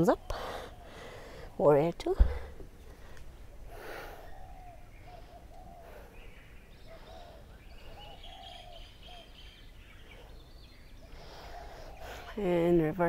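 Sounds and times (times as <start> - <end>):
low arched bird calls: 0.0 - 13.0
steady low background noise: 0.0 - 13.0
high bird chirping: 3.4 - 12.9.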